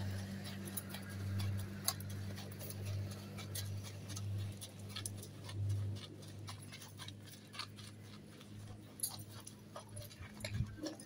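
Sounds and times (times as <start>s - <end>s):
horse hooves on gravel: 0.0s - 11.0s
steady low hum: 0.0s - 11.0s.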